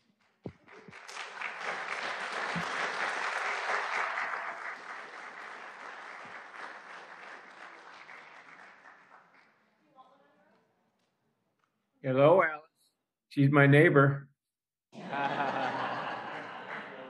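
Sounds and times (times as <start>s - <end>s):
audience applauding: 0.0s - 9.7s, 15.1s - 17.0s.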